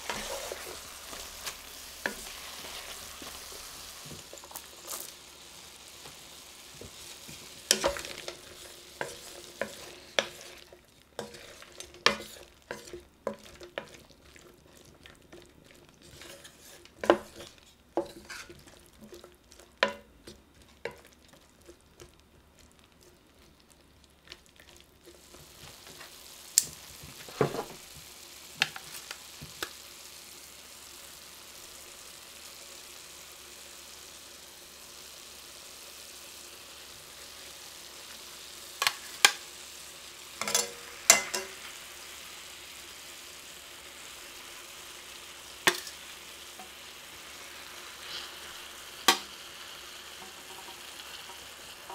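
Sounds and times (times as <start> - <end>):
wooden spatula scraping a pot: 0.0 - 5.1, 6.8 - 21.8
food sizzling: 0.0 - 51.9.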